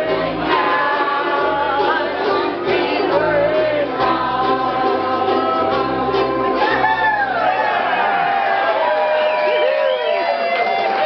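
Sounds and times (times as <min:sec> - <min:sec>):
upright bass: 0:00.0 - 0:07.8
strummed ukuleles: 0:00.0 - 0:08.5
voices singing together: 0:00.0 - 0:08.6.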